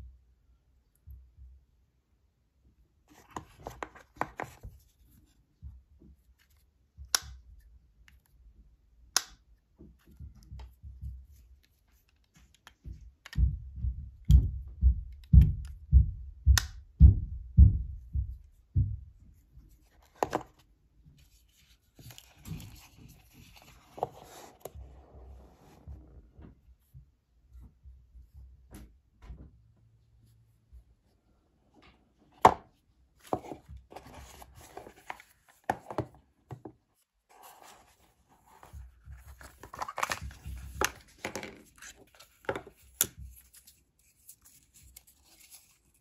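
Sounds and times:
cardboard rubbing: 33.2s - 36.2s, 37.3s - 46.0s.

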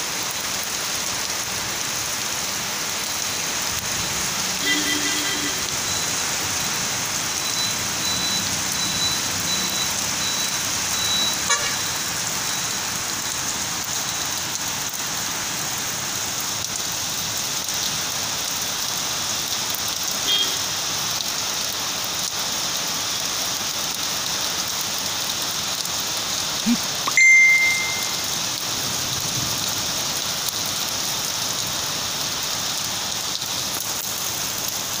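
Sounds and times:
heavy rain on wet paving: 0.0s - 35.0s
traffic on wet road: 0.0s - 35.0s
short high beep: 26.7s - 28.2s.

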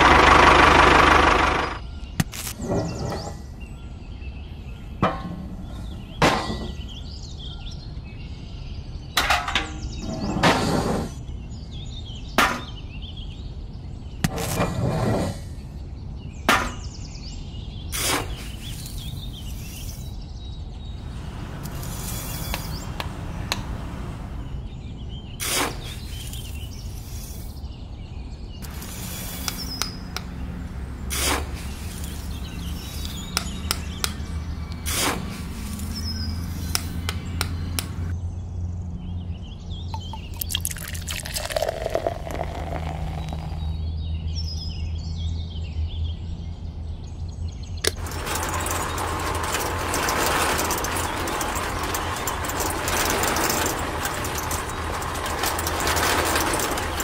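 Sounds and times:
tin buckets and metal scoop clinking: 28.6s - 38.1s, 40.0s - 43.7s, 47.9s - 57.0s.

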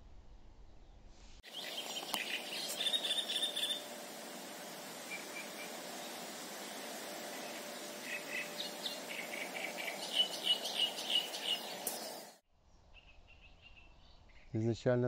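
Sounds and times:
small birds chirping: 1.4s - 3.9s, 4.9s - 14.8s
steady background hiss: 1.4s - 12.4s.

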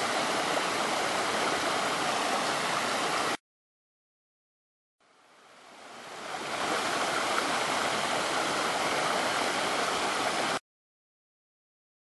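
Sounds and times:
creek water rushing over rocks: 0.0s - 3.4s, 5.0s - 10.6s.

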